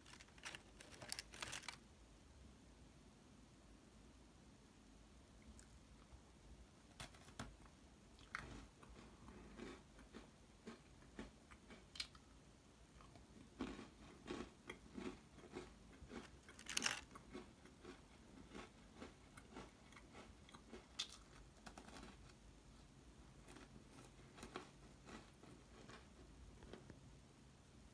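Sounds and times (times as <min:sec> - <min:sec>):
crunchy cookie chewing: 0:00.0 - 0:01.8, 0:08.1 - 0:12.3, 0:12.9 - 0:22.5, 0:23.2 - 0:27.1.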